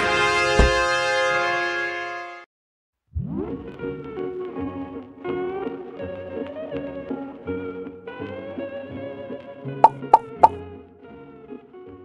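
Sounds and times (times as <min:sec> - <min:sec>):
sharp pop sound effect: 0:09.8 - 0:10.6.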